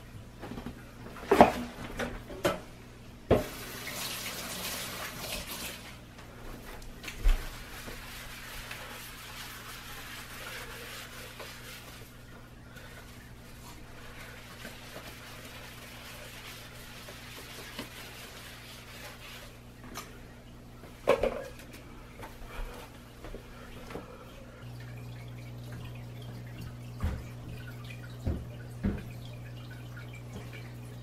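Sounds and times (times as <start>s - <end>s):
room hum: 0.0s - 31.0s
paper towel scrubbing tiled floor: 3.4s - 19.8s.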